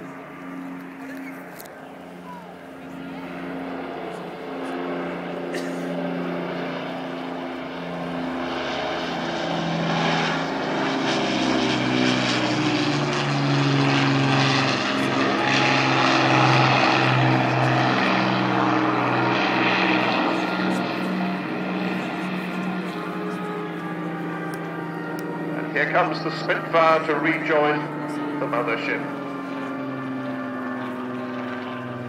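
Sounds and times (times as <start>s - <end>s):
propeller plane engines droning: 0.0s - 32.0s.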